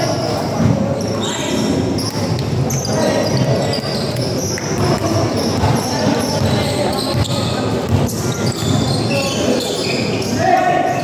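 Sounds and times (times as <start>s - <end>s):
echoing crowd voices: 0.0s - 11.0s
basketball bouncing on court: 3.2s - 9.1s.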